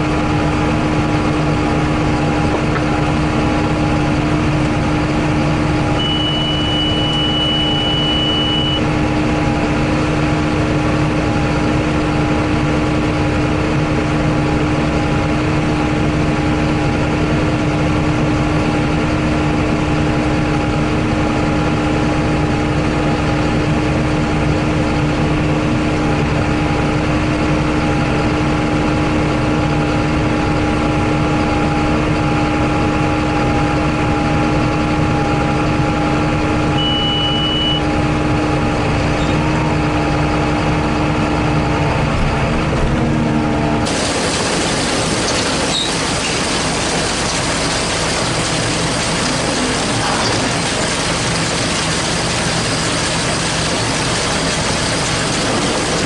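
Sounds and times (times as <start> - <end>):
tractor diesel engine running: 0.0 - 56.0
high-pitched beep: 6.0 - 8.8, 36.8 - 37.8.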